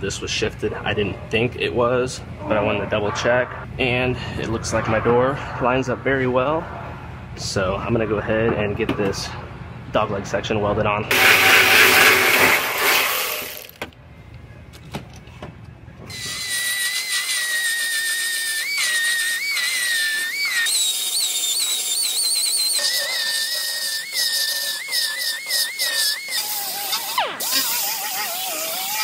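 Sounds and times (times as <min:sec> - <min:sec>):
die grinder whining: 0:11.1 - 0:13.8, 0:16.1 - 0:29.0.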